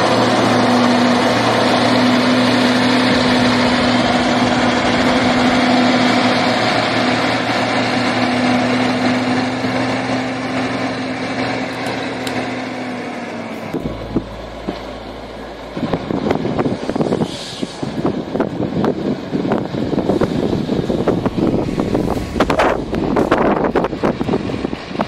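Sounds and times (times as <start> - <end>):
heavy diesel truck engine: 0.0 - 25.0.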